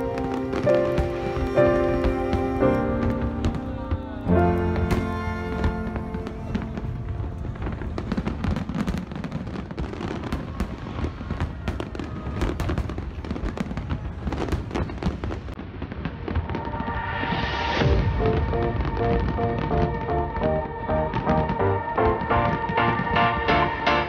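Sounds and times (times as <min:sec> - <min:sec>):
music playing: 0:00.0 - 0:08.4, 0:16.8 - 0:24.0
fireworks bursting and crackling: 0:00.0 - 0:24.0.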